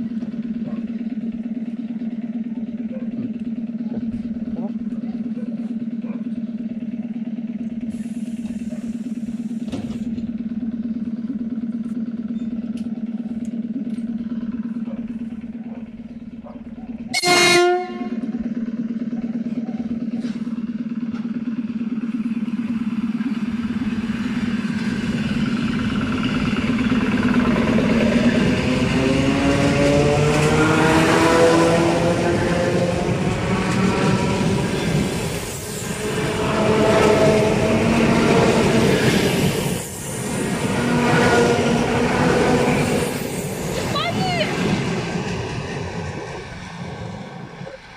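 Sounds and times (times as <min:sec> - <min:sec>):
electric train humming: 0:00.0 - 0:47.9
train wheel noise: 0:00.0 - 0:47.9
traction motor whine: 0:06.0 - 0:47.9
train horn blast: 0:17.1 - 0:18.3, 0:29.0 - 0:34.6, 0:35.8 - 0:38.8, 0:40.8 - 0:42.4.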